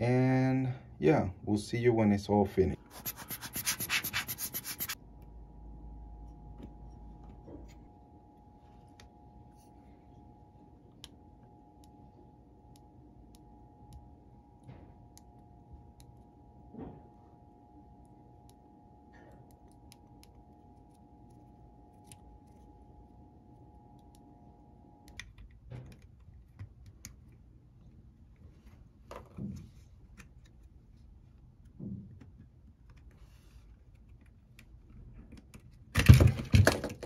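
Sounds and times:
faint steady whine: 4.4 - 29.0.

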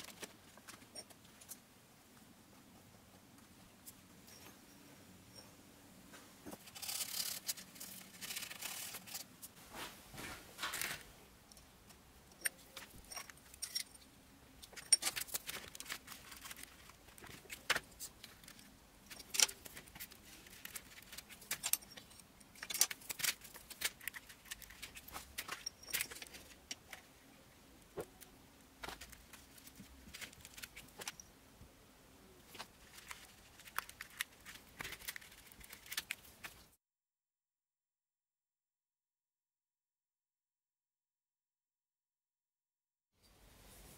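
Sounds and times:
metallic clinks of tools handled: 12.3 - 14.0.

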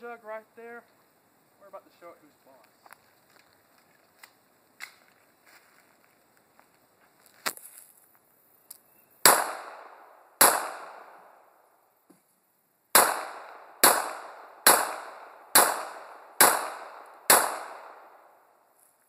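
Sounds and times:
pistol shots with echo: 9.2 - 11.4, 13.0 - 18.4.

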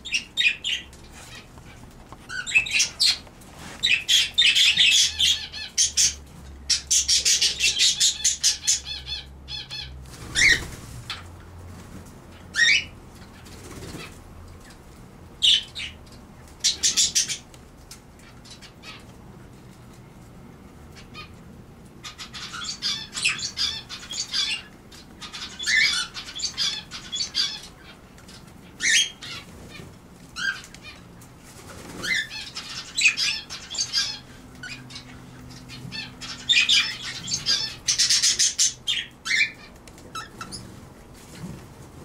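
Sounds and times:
birds fluttering wings: 10.0 - 12.3, 13.3 - 14.3, 28.0 - 33.0, 39.6 - 42.0.

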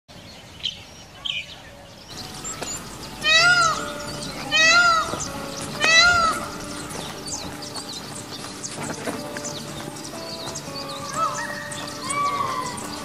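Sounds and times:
peafowl wailing cries: 2.2 - 7.5, 10.9 - 13.0.

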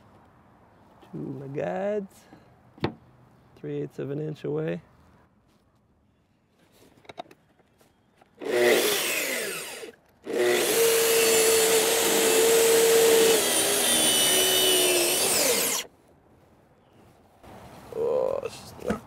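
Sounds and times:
track saw cutting wood: 8.4 - 15.9.

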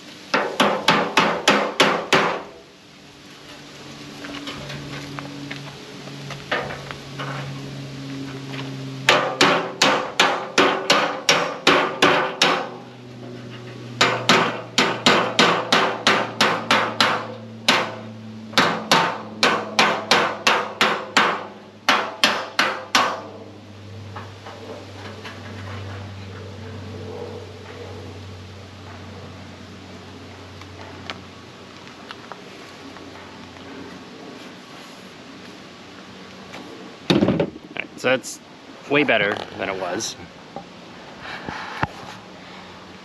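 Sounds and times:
hammer striking metal fender: 0.3 - 2.4, 9.1 - 12.8, 14.0 - 23.4.

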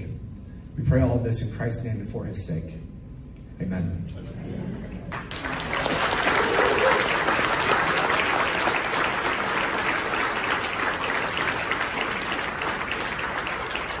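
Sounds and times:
crowd applauding: 4.9 - 14.0.

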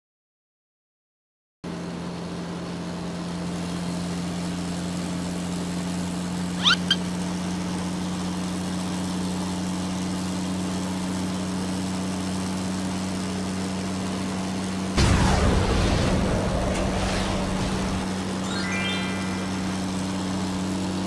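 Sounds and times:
cartoon truck engine: 6.3 - 7.8, 15.0 - 21.0
rising squeaky chirps: 6.6 - 7.1, 18.4 - 20.4.

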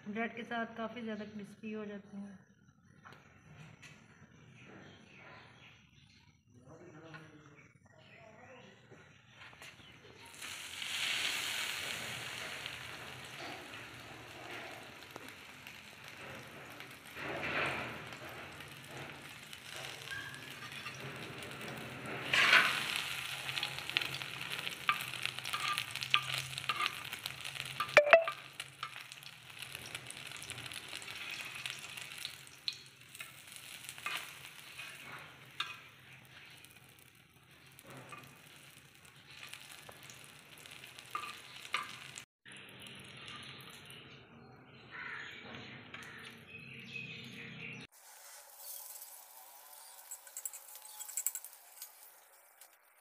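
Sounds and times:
food sizzling in a pan: 10.0 - 44.1, 47.9 - 53.0.

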